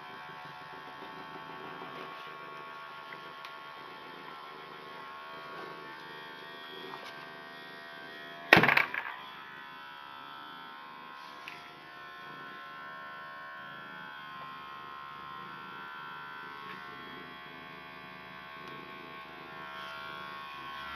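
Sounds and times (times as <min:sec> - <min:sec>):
electric massager buzzing: 0:00.0 - 0:20.9
loud brief bump: 0:08.5 - 0:09.1.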